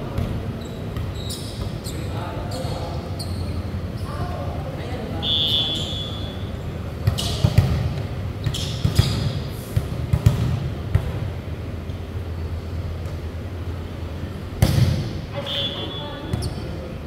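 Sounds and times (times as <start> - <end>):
volleyball smacks: 14.6 - 15.2.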